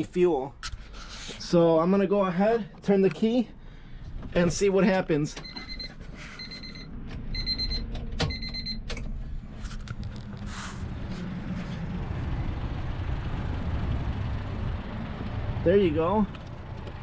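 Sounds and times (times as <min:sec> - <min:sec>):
car warning chime beeping: 0:05.4 - 0:09.0
steady low rumble: 0:06.4 - 0:17.0.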